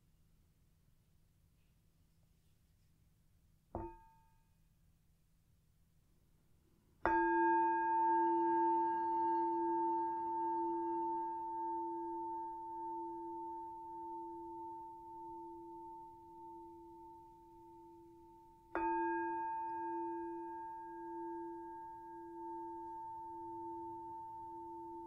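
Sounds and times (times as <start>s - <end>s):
singing bowl bell ringing: 7.1s - 25.0s.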